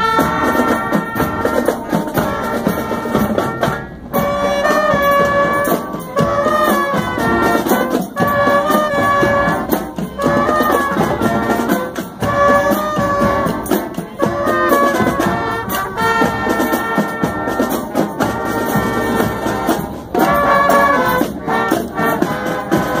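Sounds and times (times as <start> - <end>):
saxophones and trumpets chords: 0.0 - 23.0
steady drum beat: 0.0 - 23.0.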